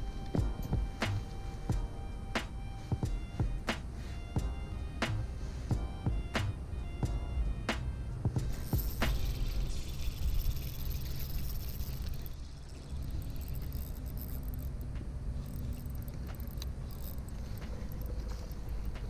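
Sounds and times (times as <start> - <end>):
fishing reel winding rumble: 8.4 - 19.0
faint ticks: 13.0 - 19.0.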